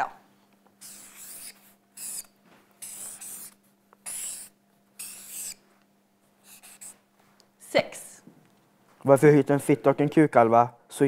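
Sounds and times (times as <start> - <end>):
marker drawing on paper: 0.8 - 5.6, 6.4 - 7.1.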